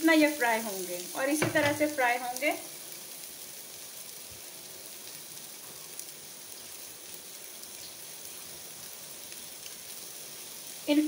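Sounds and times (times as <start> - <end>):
kebabs sizzling in frying pan: 0.0 - 11.0.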